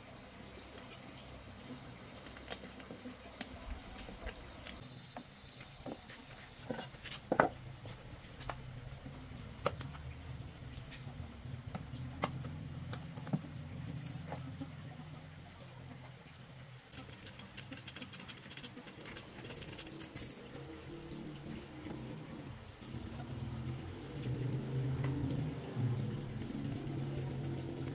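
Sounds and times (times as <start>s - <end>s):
low steady hum: 3.3s - 17.4s, 18.9s - 27.9s
hand tools clicking on metal parts: 19.5s - 20.4s.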